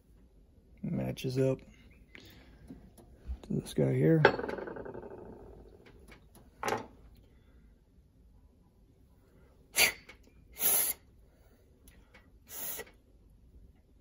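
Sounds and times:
air puffs hissing: 0:09.7 - 0:11.7, 0:12.4 - 0:13.0.

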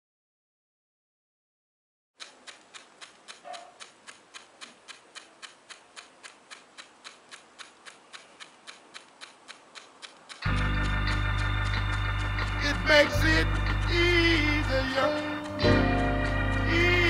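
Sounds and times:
faint steady ticking: 0:02.2 - 0:17.0.

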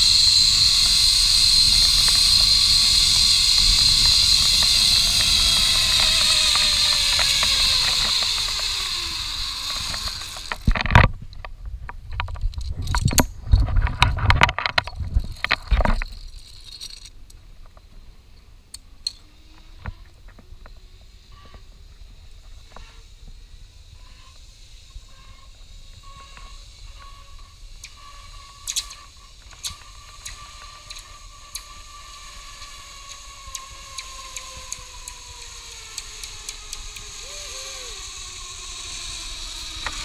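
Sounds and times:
pulleys whining along cable: 0:00.0 - 0:11.0, 0:23.8 - 0:40.0.

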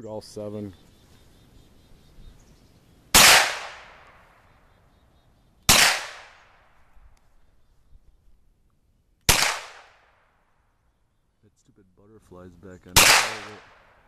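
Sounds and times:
gunshots: 0:03.1 - 0:04.2, 0:05.7 - 0:06.6, 0:09.3 - 0:10.2, 0:13.0 - 0:14.0.

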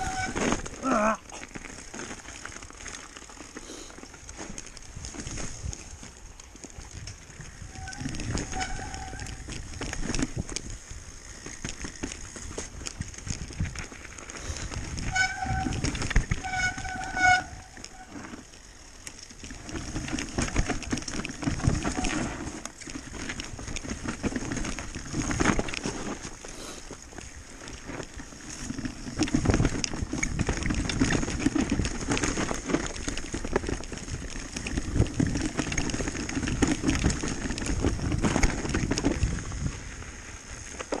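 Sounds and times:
tyre rumble: 0:00.0 - 0:06.2, 0:07.3 - 0:10.6, 0:11.5 - 0:18.5, 0:19.5 - 0:40.0
mountain bike rattling: 0:00.0 - 0:41.0
disc brakes squealing: 0:07.6 - 0:09.5, 0:15.1 - 0:18.2.

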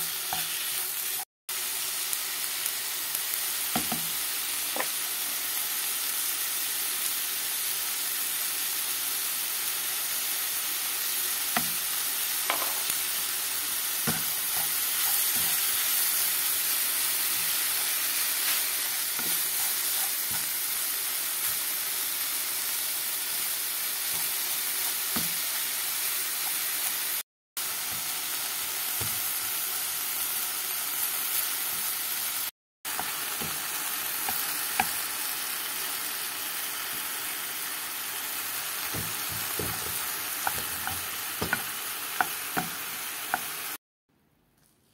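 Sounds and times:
meat and onion sizzling in a pan: 0:00.0 - 0:43.8
wooden spoon scraping a pan: 0:18.4 - 0:20.5.

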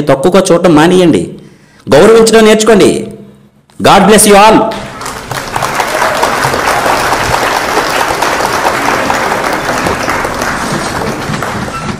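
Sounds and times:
audience applauding: 0:04.7 - 0:11.9.

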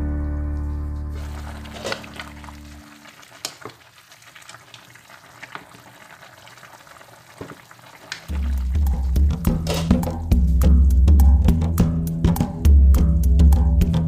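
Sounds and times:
background music: 0:00.0 - 0:02.8, 0:08.3 - 0:14.0
soup simmering and bubbling: 0:01.0 - 0:09.9.

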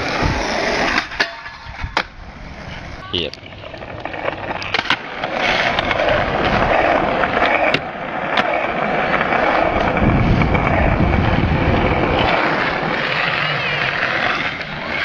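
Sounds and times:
skateboard wheels rolling on asphalt: 0:00.0 - 0:15.0
skateboard clacks: 0:03.1 - 0:15.0.

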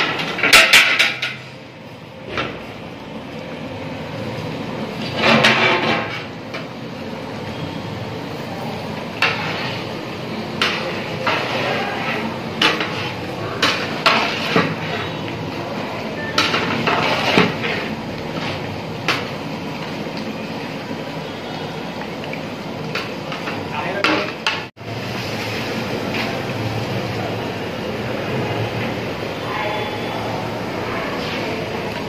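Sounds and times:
metal spatula scraping a pot: 0:09.2 - 0:09.9, 0:10.6 - 0:15.3, 0:16.2 - 0:18.7.

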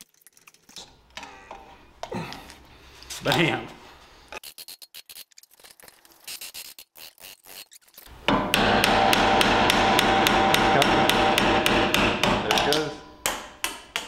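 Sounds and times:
tapping and handling parts: 0:08.1 - 0:14.0
power tool pulsing: 0:08.2 - 0:12.5.

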